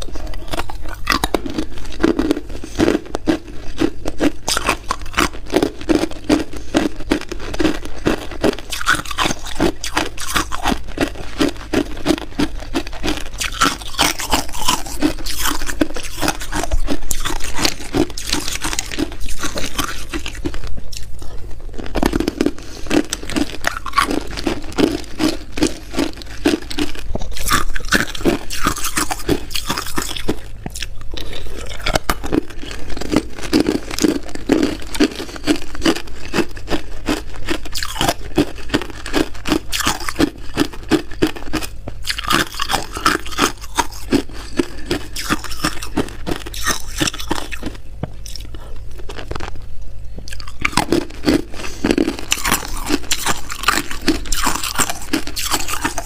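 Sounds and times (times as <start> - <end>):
ice crunching between teeth: 0.0 - 49.6, 50.3 - 56.0.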